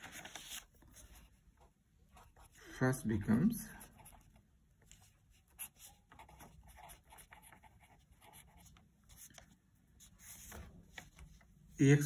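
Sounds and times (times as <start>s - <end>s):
marker pen scratching on paper: 3.8s - 11.2s.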